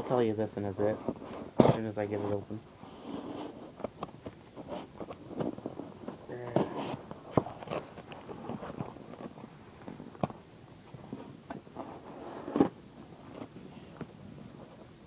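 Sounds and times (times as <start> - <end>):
packaging and tape rustling: 3.2 - 10.4.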